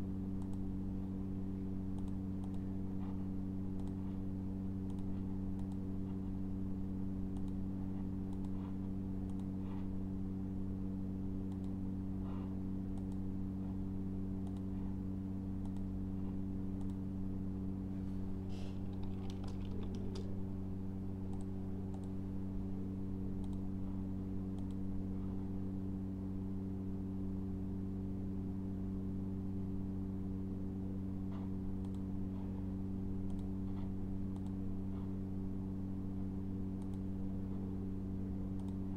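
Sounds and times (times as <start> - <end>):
low electrical hum: 0.0 - 38.9
mouse clicks: 0.4 - 0.7, 1.9 - 2.6, 4.8 - 5.9, 7.3 - 7.6, 11.5 - 11.8, 13.0 - 13.2, 14.4 - 14.7, 15.6 - 15.9, 16.8 - 17.0, 18.8 - 20.3, 21.3 - 22.2, 23.4 - 23.6, 34.3 - 34.6, 36.8 - 37.0, 38.6 - 38.8
keyboard typing: 18.8 - 20.3.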